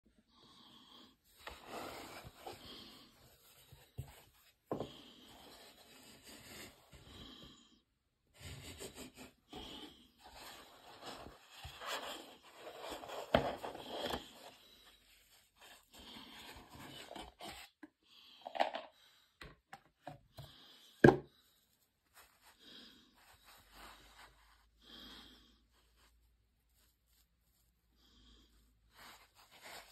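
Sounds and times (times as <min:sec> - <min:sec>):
rustling and scraping of box: 0:01.4 - 0:07.0, 0:08.4 - 0:17.8, 0:29.1 - 0:29.9.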